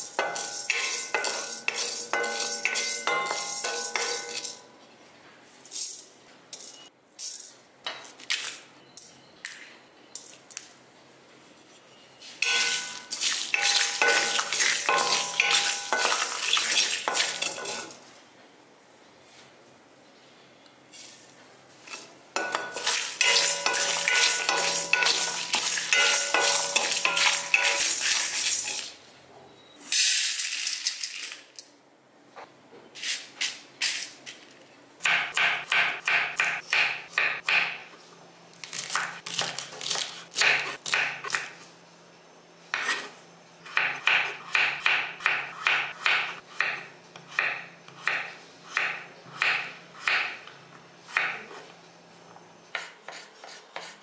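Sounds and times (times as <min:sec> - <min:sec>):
pan ringing: 0:00.0 - 0:04.7, 0:12.4 - 0:16.3, 0:23.2 - 0:27.9
spatula stirring and scraping pan: 0:00.0 - 0:04.7, 0:12.3 - 0:18.0, 0:21.8 - 0:29.0.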